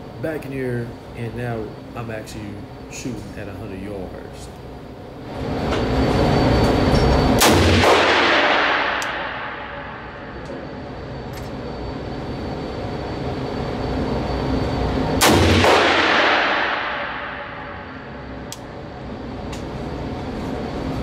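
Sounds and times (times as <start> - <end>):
loud rifle shot echoing: 7.4 - 10.3, 15.2 - 18.1.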